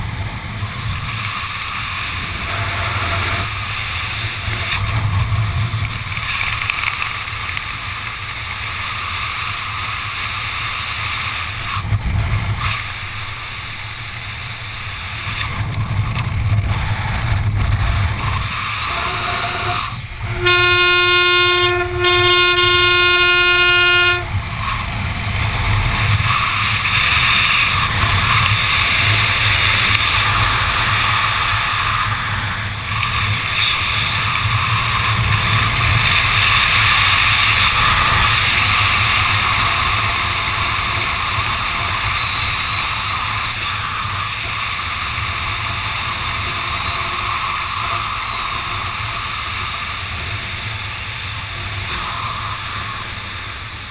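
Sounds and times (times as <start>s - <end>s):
wind rushing over microphone: 0.0s - 20.8s, 21.4s - 53.9s
long steady tones: 18.1s - 53.9s.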